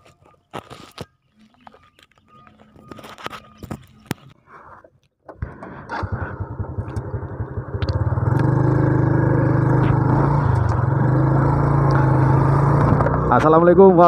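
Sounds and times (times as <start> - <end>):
motor scooter engine running: 5.4 - 13.5.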